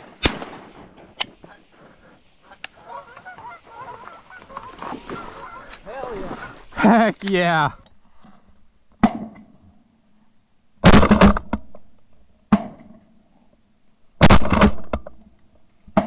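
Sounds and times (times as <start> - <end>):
shotgun shots: 0.0 - 1.6.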